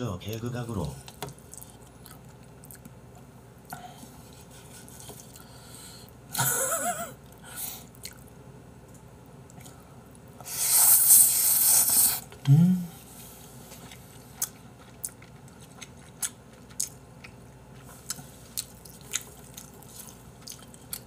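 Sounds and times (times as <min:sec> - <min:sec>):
loud slurp of noodles: 0:10.5 - 0:12.3
short wavering vocal sound: 0:12.4 - 0:13.0.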